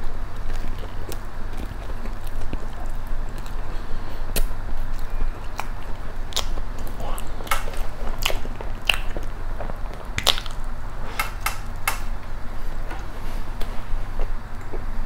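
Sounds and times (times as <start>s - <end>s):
chewing with wet mouth clicks: 0.0s - 12.1s
low steady hum: 0.0s - 15.0s.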